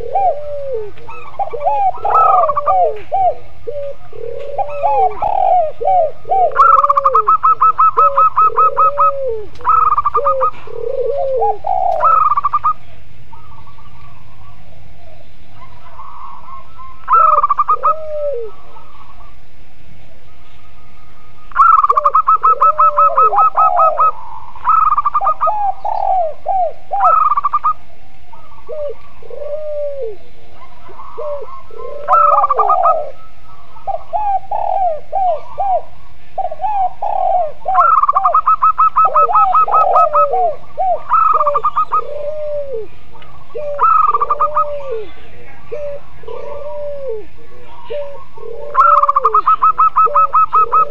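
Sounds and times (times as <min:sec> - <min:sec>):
background hiss: 0:00.0 - 0:50.9
doves cooing: 0:00.0 - 0:50.9
fast rolling bird trills: 0:00.0 - 0:50.9.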